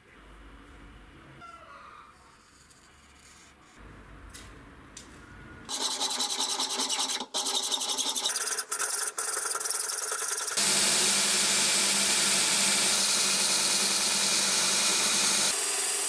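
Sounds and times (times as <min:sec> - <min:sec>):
hand file scratching metal plate: 0:05.7 - 0:10.6.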